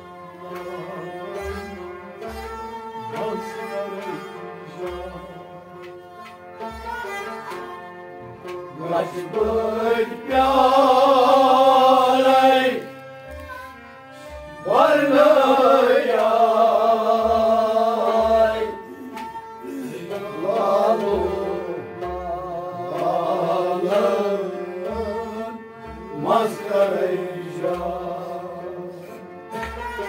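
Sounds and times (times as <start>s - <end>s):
harmonium chords: 0.0s - 30.0s
plucked rabab: 0.5s - 25.2s
man singing: 3.2s - 5.4s.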